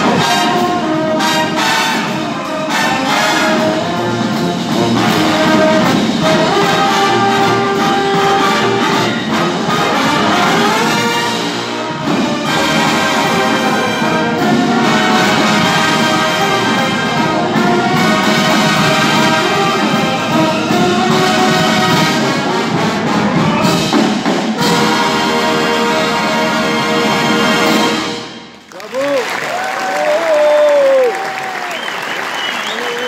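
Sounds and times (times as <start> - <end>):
marching brass band playing: 0.0 - 28.7.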